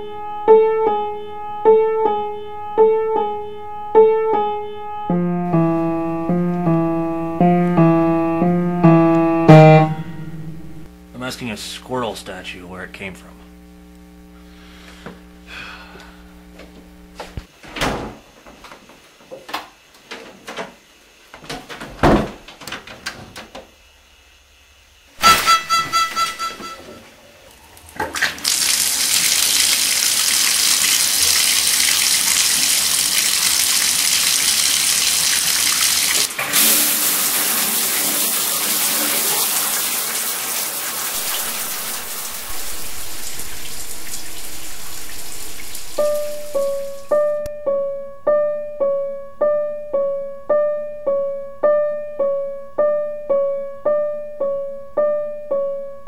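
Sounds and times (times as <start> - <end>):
water running from tub faucet: 27.9 - 47.4.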